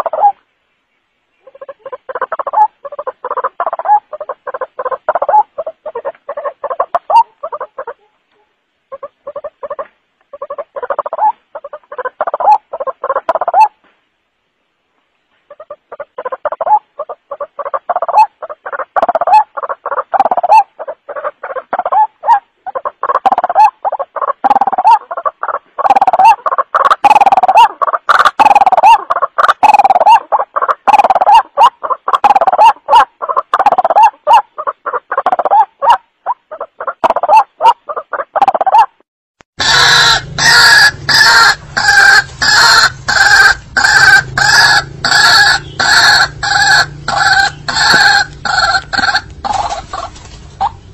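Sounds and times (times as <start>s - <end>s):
evenly spaced bird calls: 0.0s - 50.9s
harsh repeated bird calls: 39.6s - 50.9s.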